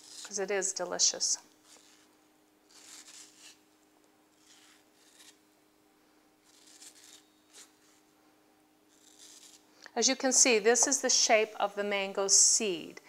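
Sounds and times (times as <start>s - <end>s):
knife scraping fruit: 0.0s - 0.5s, 1.5s - 3.7s, 4.3s - 5.4s, 6.4s - 8.0s, 8.9s - 9.7s
low steady hum: 0.0s - 13.0s.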